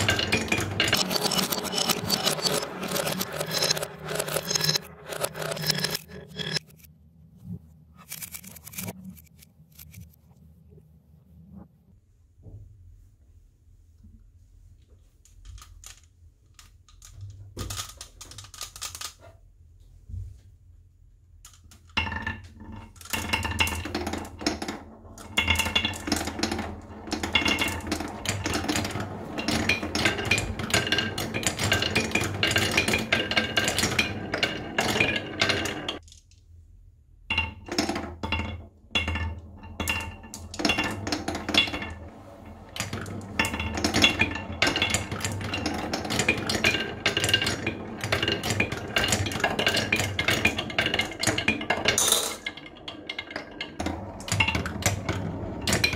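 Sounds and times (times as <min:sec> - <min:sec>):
marbles clattering on wooden track: 0:00.0 - 0:06.9, 0:15.4 - 0:19.2, 0:21.5 - 0:36.2, 0:37.3 - 0:55.9.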